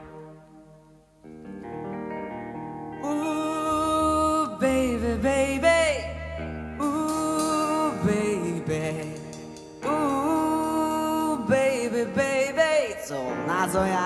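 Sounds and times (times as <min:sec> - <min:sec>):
man singing long held notes: 0:03.0 - 0:14.0
live band accompaniment: 0:05.6 - 0:14.0.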